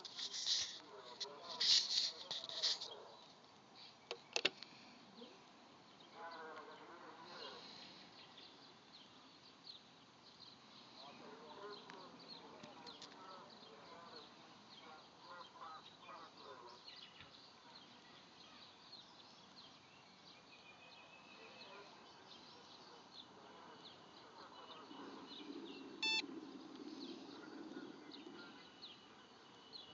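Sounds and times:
small birds chirping: 0:00.0 - 0:29.9
short electronic beep: 0:26.0 - 0:26.2.

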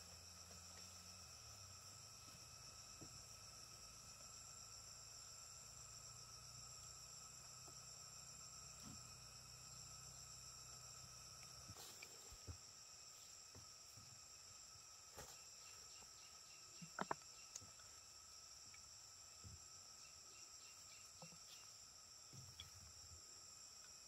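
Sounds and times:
insects trilling: 0:00.0 - 0:24.0
small regular ticks: 0:15.2 - 0:19.0, 0:20.4 - 0:24.0.

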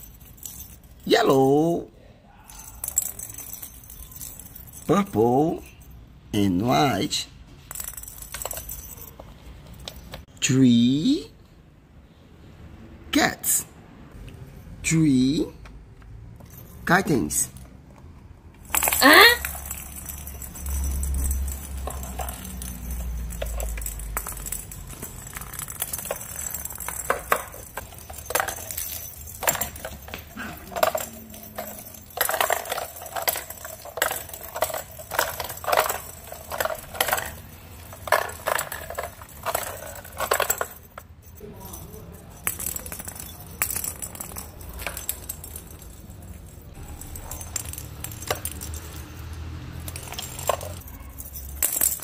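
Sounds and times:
plastic toy balls rattling on concrete: 0:00.0 - 0:01.7, 0:02.4 - 0:06.0, 0:06.7 - 0:10.4, 0:18.5 - 0:52.0.

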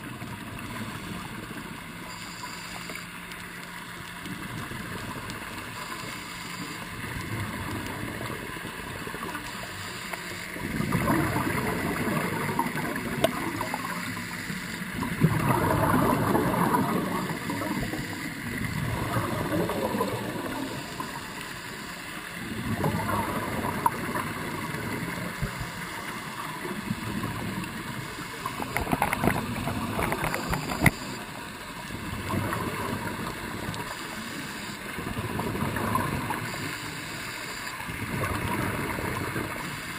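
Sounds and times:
exhaled bubbles gurgling underwater: 0:00.0 - 0:39.9
regulator hiss: 0:05.6 - 0:07.0, 0:09.2 - 0:10.7, 0:20.5 - 0:22.3, 0:33.6 - 0:35.0, 0:36.3 - 0:37.8.

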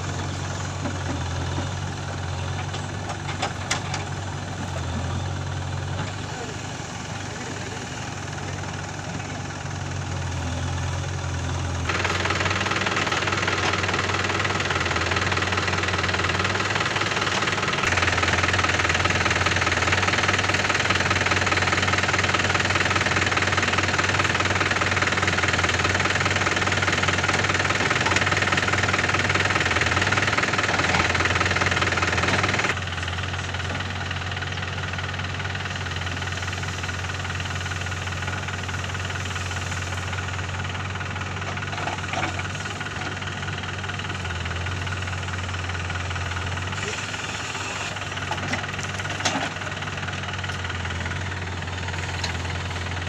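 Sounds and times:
diesel engines running: 0:00.0 - 0:53.0
backhoe digging soil: 0:40.7 - 0:53.0.

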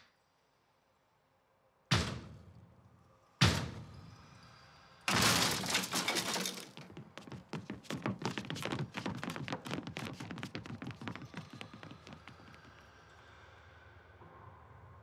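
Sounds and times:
loud crash: 0:05.1 - 0:06.6.

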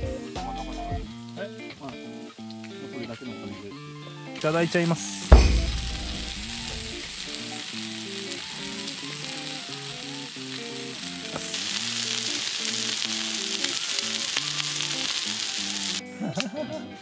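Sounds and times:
skewers sizzling on griddle: 0:04.4 - 0:16.2.

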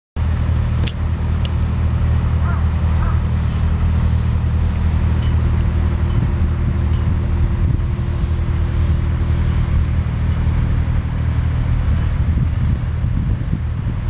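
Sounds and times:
low droning hum: 0:00.2 - 0:14.0
faint short bird calls: 0:02.4 - 0:04.7.

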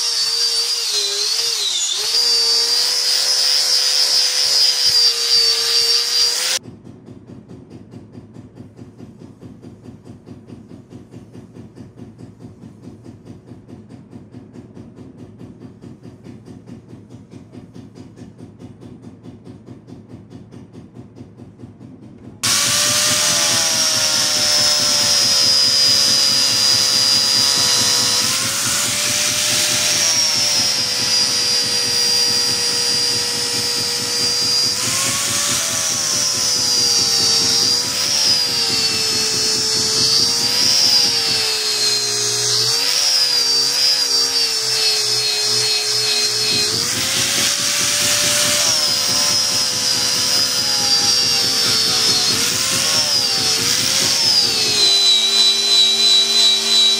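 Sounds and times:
power tool motor whining: 0:00.0 - 0:06.6, 0:22.4 - 0:56.9.

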